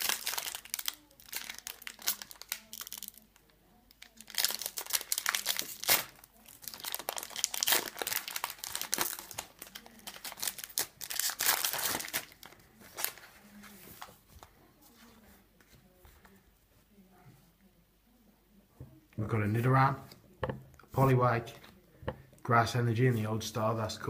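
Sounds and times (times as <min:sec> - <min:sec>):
foil wrapper crinkling and tearing: 0:00.0 - 0:13.4.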